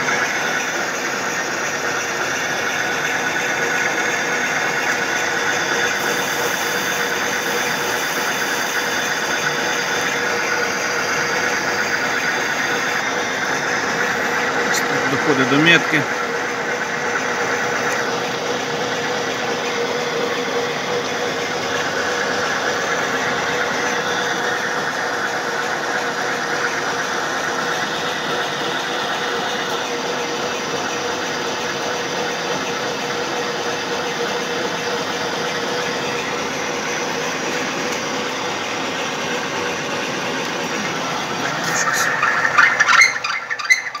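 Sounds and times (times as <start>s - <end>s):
milling machine cutting steel: 0.0s - 26.7s, 33.4s - 44.0s.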